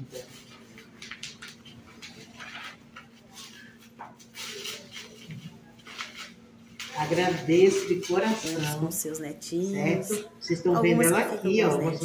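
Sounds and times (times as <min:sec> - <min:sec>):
bubble wrap and paper crinkling: 0:00.2 - 0:09.1.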